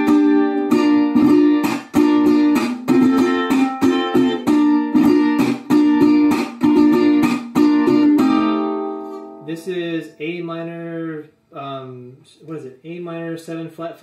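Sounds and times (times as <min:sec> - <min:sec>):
strummed string instrument: 0:00.0 - 0:10.8.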